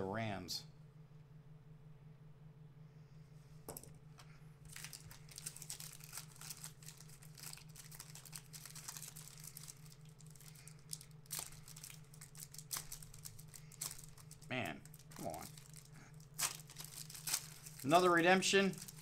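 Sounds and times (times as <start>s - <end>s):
foil wrapper tearing and crinkling: 4.7s - 19.0s.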